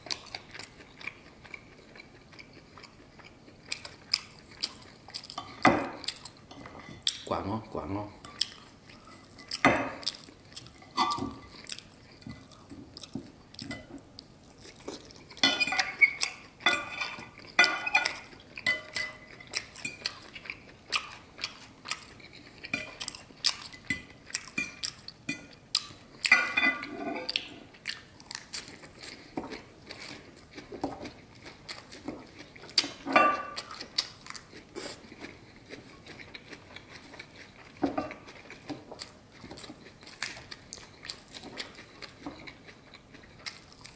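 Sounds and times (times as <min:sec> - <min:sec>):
chewing: 0:00.0 - 0:43.9
knife and fork scraping plate: 0:26.3 - 0:27.4.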